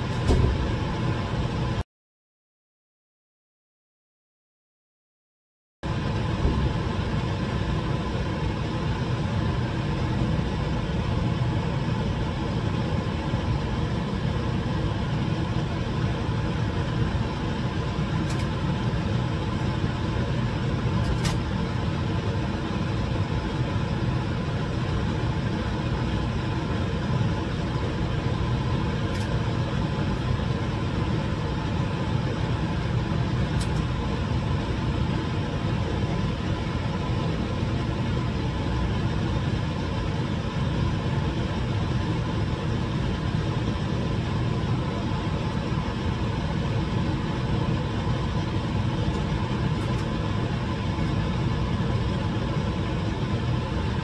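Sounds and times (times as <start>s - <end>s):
cabinet blower rushing air: 0.0s - 1.1s.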